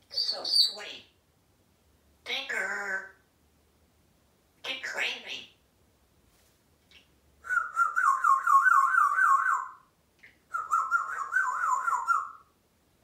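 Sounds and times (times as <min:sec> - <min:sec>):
parrot warbling whistles: 0:07.4 - 0:09.8, 0:10.5 - 0:12.4.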